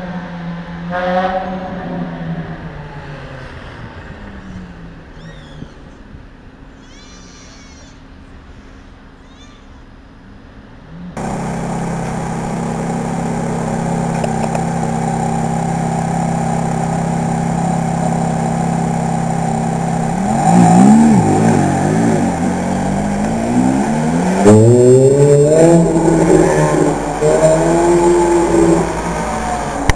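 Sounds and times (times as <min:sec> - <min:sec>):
faint chirping calls: 0:05.1 - 0:06.1, 0:06.7 - 0:09.9
sports car engine: 0:11.1 - 0:29.9.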